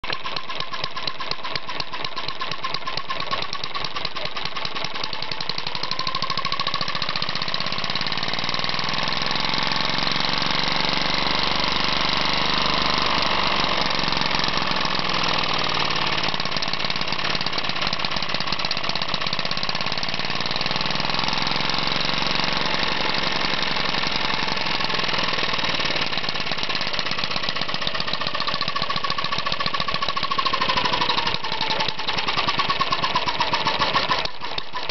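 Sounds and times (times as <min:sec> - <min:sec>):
model engine running: 0:00.0 - 0:34.9.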